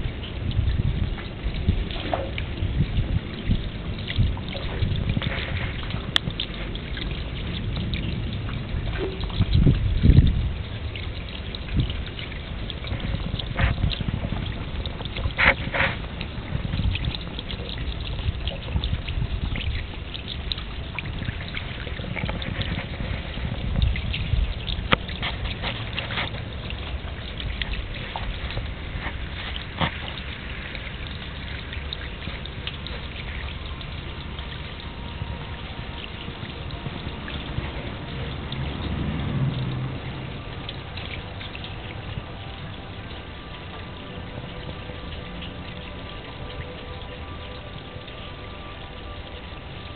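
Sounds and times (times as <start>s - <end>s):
rainwater running down a metal downpipe: 0.0s - 49.9s
water drips and splashes: 0.0s - 49.9s.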